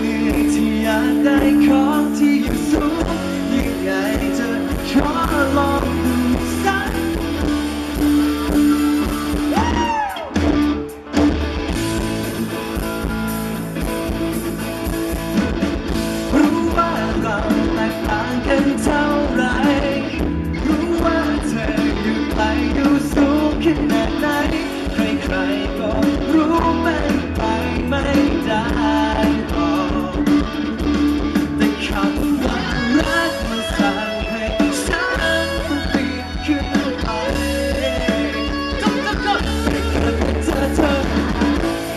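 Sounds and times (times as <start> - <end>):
male vocalist singing: 0.0 - 7.5, 16.3 - 41.9
drum kit: 0.0 - 41.9
electric guitar: 0.0 - 41.9.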